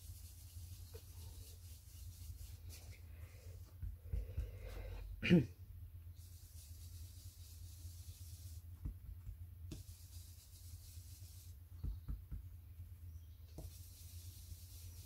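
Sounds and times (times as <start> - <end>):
steady low hum: 0.0 - 15.0
brush tapping on paper: 3.6 - 4.8, 8.7 - 10.0, 11.7 - 12.6.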